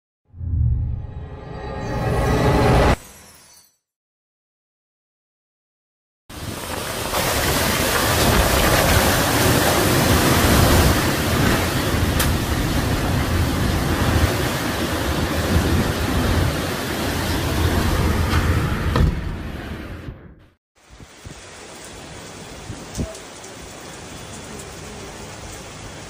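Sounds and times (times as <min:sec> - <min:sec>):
strong wind and rain: 0:06.3 - 0:20.2, 0:20.8 - 0:26.0.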